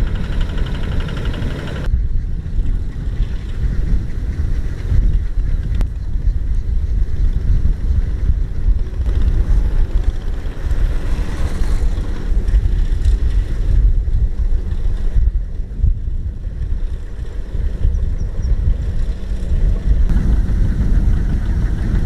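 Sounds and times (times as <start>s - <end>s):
diesel tractor engine running: 0.0s - 1.9s, 16.4s - 22.0s
wind rumble on microphone: 0.0s - 22.0s.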